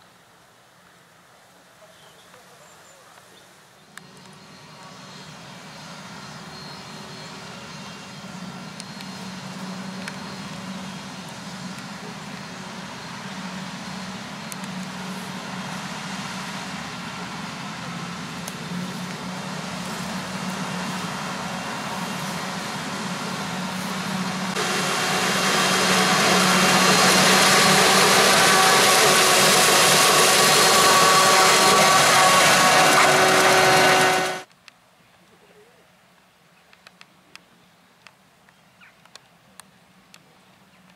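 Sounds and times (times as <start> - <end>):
engine hum: 3.8 - 34.5
harvester chopping and blowing: 7.6 - 34.5.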